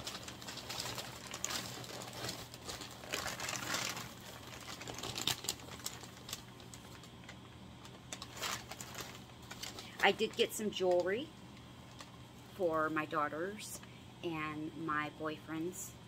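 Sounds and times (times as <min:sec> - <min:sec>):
packing paper rustling and crackling: 0:00.0 - 0:11.2.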